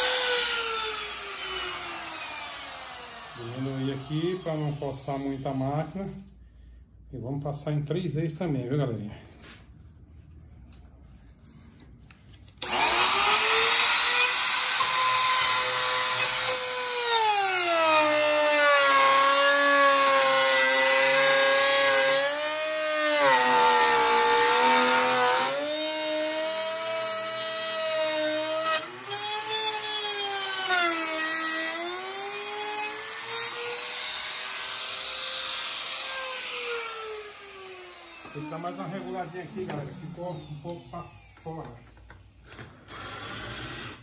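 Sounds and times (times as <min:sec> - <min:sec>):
router whine cutting wood: 0:00.0 - 0:04.9, 0:12.6 - 0:42.1.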